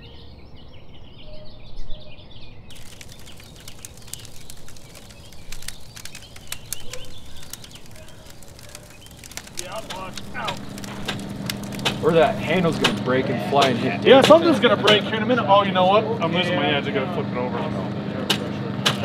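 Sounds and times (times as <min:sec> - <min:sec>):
small birds chirping: 0:00.0 - 0:13.0
sharp irregular clicks and knocks: 0:02.7 - 0:13.0.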